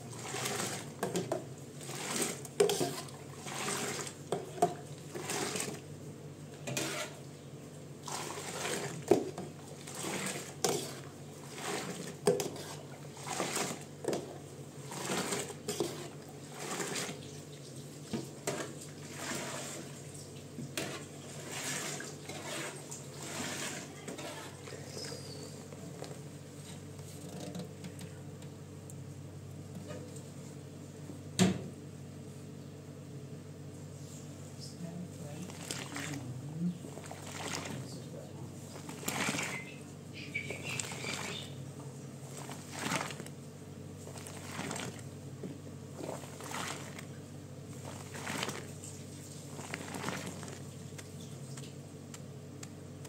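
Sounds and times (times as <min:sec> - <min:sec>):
milk pouring and splashing: 0:00.0 - 0:05.8, 0:08.0 - 0:24.8, 0:35.4 - 0:38.0, 0:38.6 - 0:39.8, 0:40.4 - 0:41.6, 0:42.2 - 0:45.1, 0:45.9 - 0:51.8.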